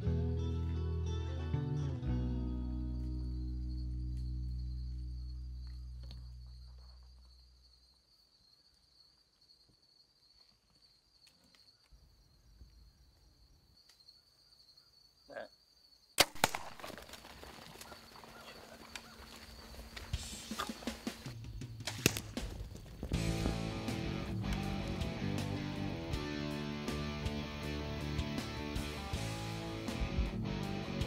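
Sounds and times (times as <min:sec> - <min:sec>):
background music: 0:00.0 - 0:04.2, 0:23.2 - 0:31.0
bow shot crack: 0:16.2 - 0:17.4, 0:20.2 - 0:22.6
animal running through brush: 0:16.3 - 0:23.9.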